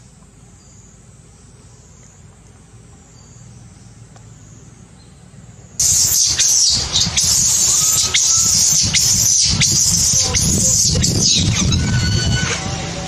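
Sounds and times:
baby monkey screaming: 0:05.8 - 0:12.8.

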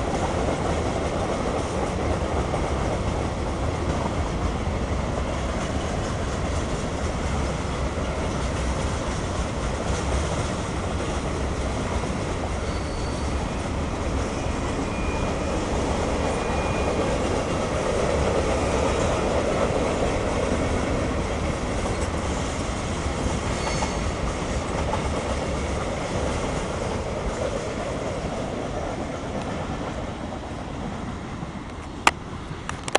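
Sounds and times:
freight train rolling past: 0:00.0 - 0:32.9
high wheel squeals: 0:12.4 - 0:17.4, 0:23.4 - 0:24.4.

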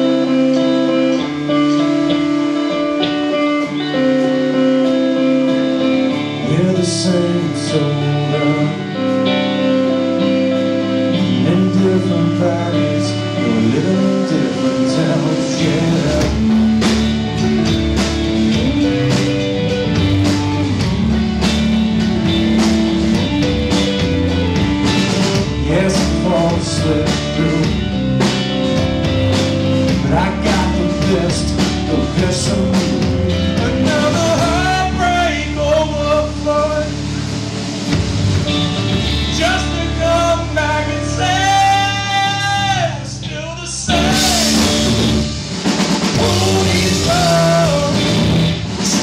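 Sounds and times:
drum kit: 0:00.0 - 0:49.0
electric bass: 0:00.0 - 0:49.0
electric guitars: 0:00.0 - 0:49.0
man singing lead vocal: 0:06.1 - 0:09.7, 0:11.0 - 0:16.6, 0:25.4 - 0:28.3, 0:29.9 - 0:37.0, 0:39.2 - 0:45.2, 0:46.0 - 0:49.0.

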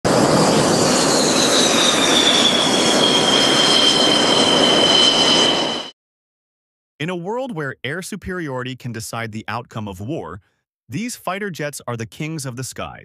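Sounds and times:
jet engine rush and whine: 0:00.1 - 0:06.0.

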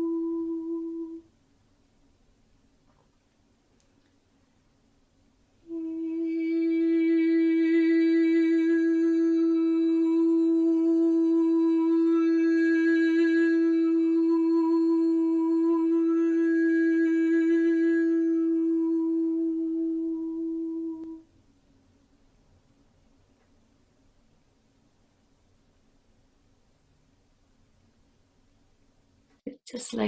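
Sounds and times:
woman singing a long held tone: 0:00.0 - 0:01.3, 0:05.6 - 0:21.3.

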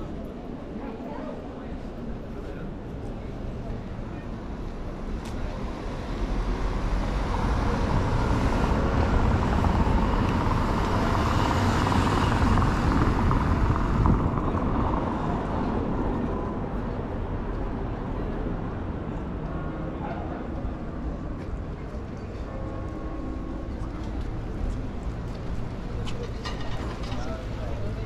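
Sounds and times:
cars driving past: 0:05.1 - 0:19.0.

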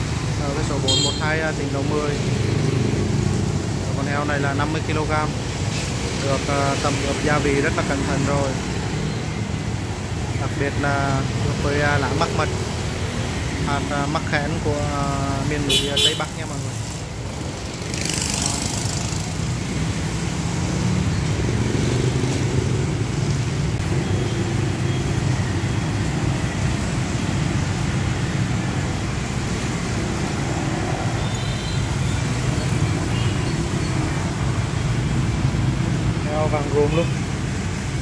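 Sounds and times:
motorbikes and cars passing: 0:00.0 - 0:38.0.

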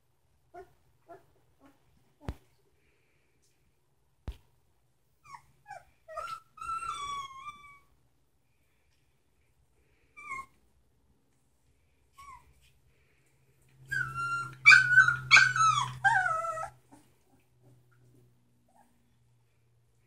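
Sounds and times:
puppies crying and yelping: 0:05.2 - 0:07.9, 0:10.0 - 0:10.6, 0:13.7 - 0:17.8
faint puppy whines: 0:05.2 - 0:08.0, 0:09.9 - 0:10.7, 0:12.1 - 0:12.8, 0:13.8 - 0:18.1, 0:18.7 - 0:19.2.

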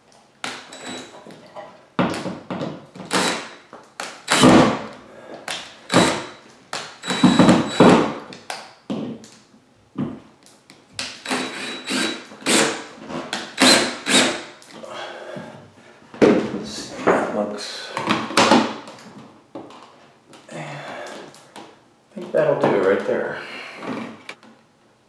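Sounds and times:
cordless drill driving screws: 0:00.7 - 0:01.1, 0:03.1 - 0:03.6, 0:04.3 - 0:04.8, 0:05.9 - 0:06.4, 0:07.0 - 0:08.2, 0:11.2 - 0:12.9, 0:13.5 - 0:14.4.

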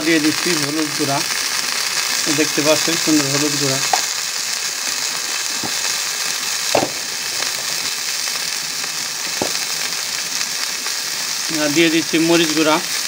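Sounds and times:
onions sizzling in oil: 0:00.0 - 0:13.0
sharp popping of oil: 0:01.4 - 0:11.0.

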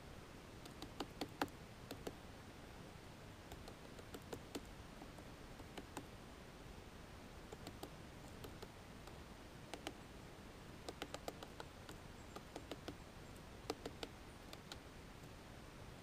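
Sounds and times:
woodpecker tapping: 0:00.6 - 0:02.2, 0:03.5 - 0:06.1, 0:07.5 - 0:10.0, 0:10.8 - 0:14.9.

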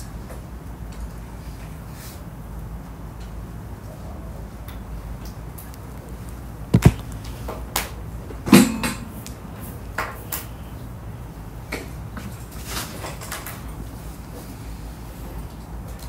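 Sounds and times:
low room hum: 0:00.0 - 0:16.0
knocks and clicks of objects: 0:06.7 - 0:07.2.

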